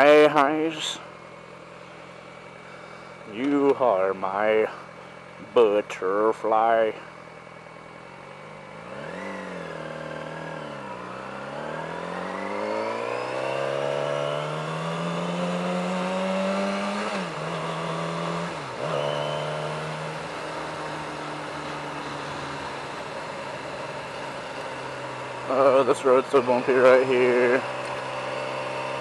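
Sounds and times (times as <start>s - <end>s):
motorcycle engine revving: 6.9s - 29.0s.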